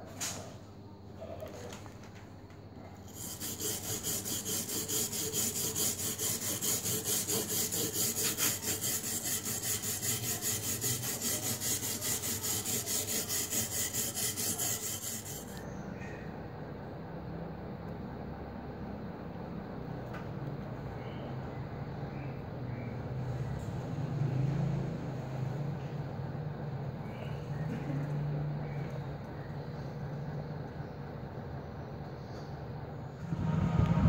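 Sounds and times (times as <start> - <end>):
abrasive block scraping metal blade: 3.1 - 15.6.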